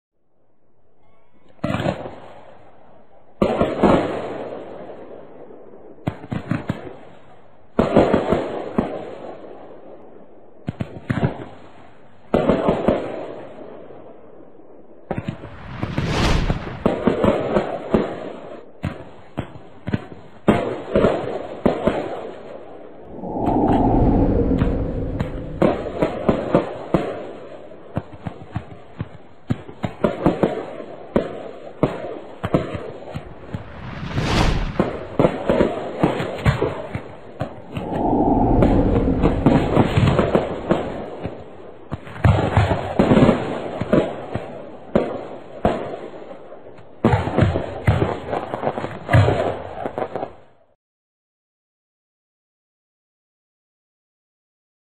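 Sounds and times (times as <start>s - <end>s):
fireworks bangs and crackling: 12.3s - 13.5s, 15.1s - 19.2s, 26.0s - 36.4s, 47.0s - 50.3s
rushing whoosh: 15.3s - 17.0s, 23.0s - 26.6s, 33.2s - 35.5s, 37.6s - 41.3s.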